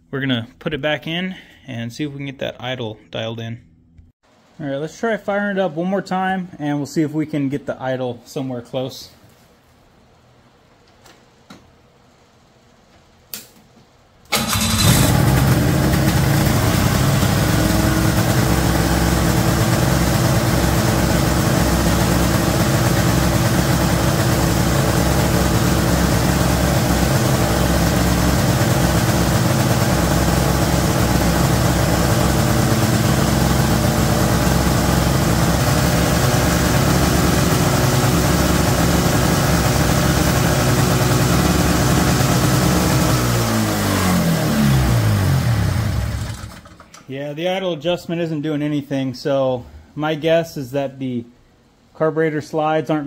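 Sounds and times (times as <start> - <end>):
snowmobile engine fast idle: 14.3 - 46.8.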